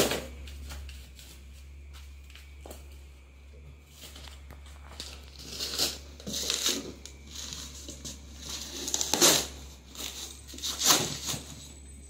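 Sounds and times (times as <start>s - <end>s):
stiff fabric crinkling against cardboard: 3.9s - 11.7s.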